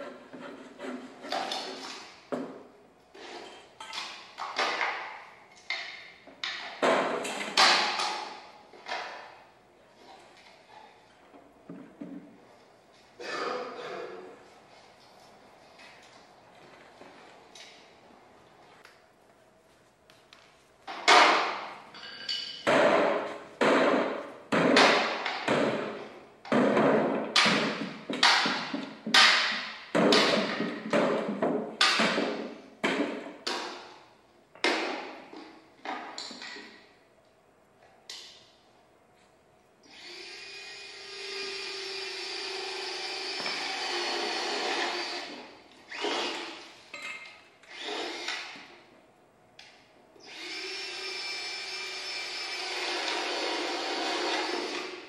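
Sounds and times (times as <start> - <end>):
sharp knocks and clatters: 20.9 - 34.0.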